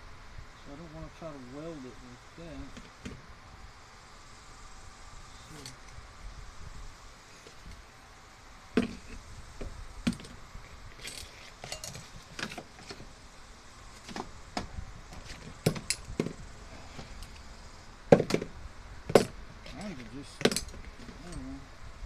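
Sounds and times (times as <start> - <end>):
metal spring clicks and clinks: 5.5 - 6.0, 11.0 - 12.1
knocks on wooden bench: 18.1 - 18.5.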